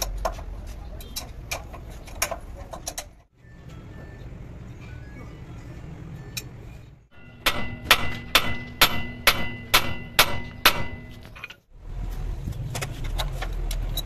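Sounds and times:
hammer striking steel ringing: 7.1 - 11.2.

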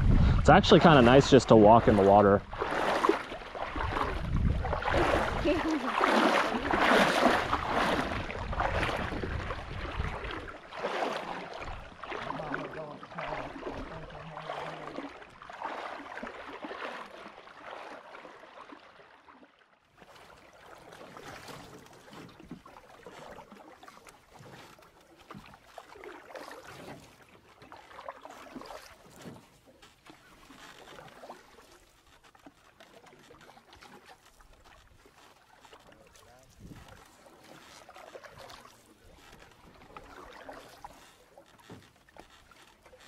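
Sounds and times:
wading through shallow water: 0.0 - 43.0.

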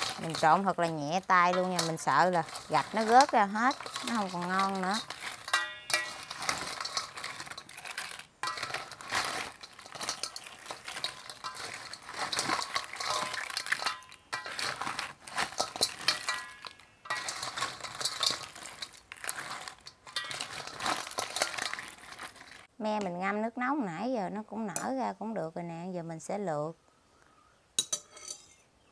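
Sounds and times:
crab shells clattering in a basin: 0.0 - 22.7.

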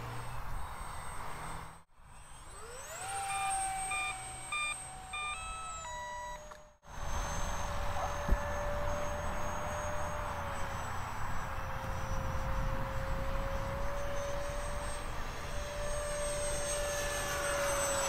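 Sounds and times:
electric ducted fan whining: 0.0 - 18.0
short electronic beeps: 3.9 - 6.5.

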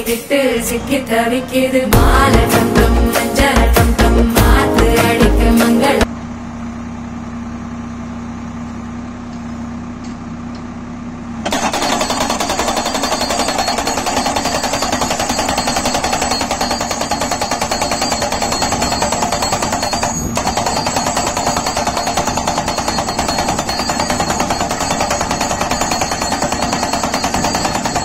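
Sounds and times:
post driver humming: 11.4 - 28.0
rapid hammering of post: 11.5 - 28.0.

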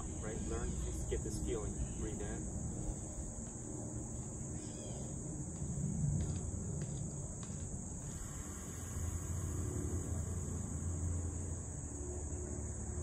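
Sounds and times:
insects shrilling: 0.0 - 3.3, 4.4 - 5.2, 7.9 - 12.6
low uneven rumble: 5.1 - 13.0.

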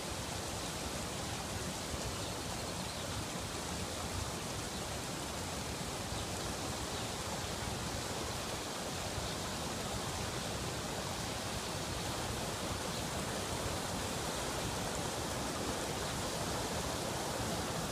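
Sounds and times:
floodwater rushing: 7.4 - 17.9.

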